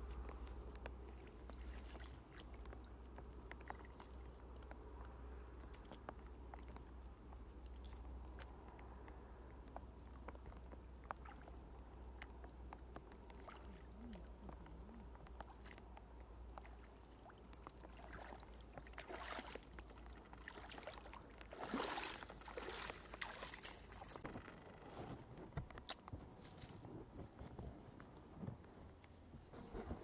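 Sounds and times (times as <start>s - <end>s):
splashing footsteps wading: 0.0s - 6.8s, 9.9s - 24.2s
hands sloshing in shallow water: 0.5s - 4.6s, 13.2s - 24.2s.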